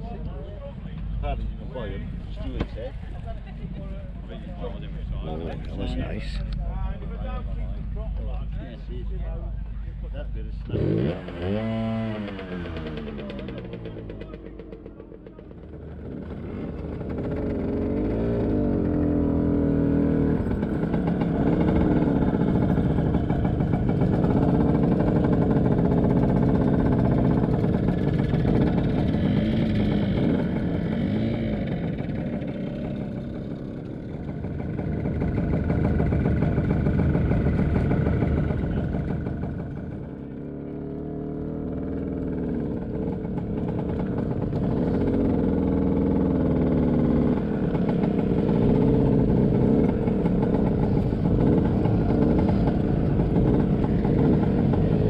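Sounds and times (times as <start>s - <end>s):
scooter engine revving: 10.7s - 55.0s.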